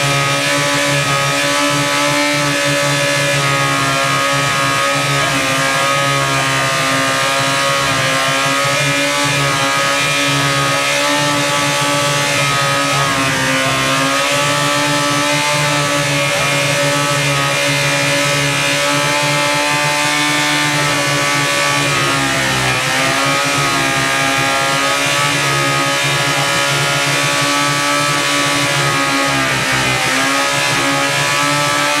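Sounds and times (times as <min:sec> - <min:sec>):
motorcycle engine revving high: 0:00.0 - 0:32.0.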